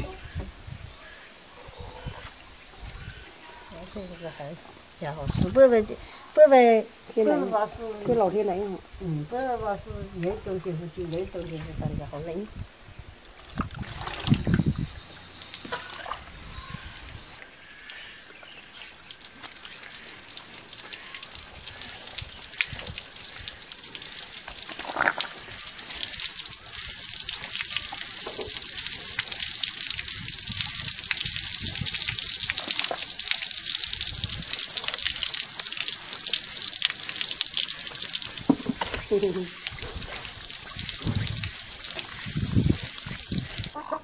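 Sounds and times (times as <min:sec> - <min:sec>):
liquid trickling and splashing: 0:09.3 - 0:12.1, 0:13.2 - 0:44.0.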